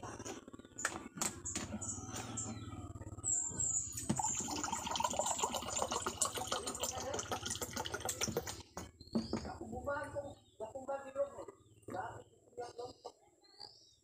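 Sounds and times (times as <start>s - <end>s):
water pouring into a cup: 4.0s - 8.6s.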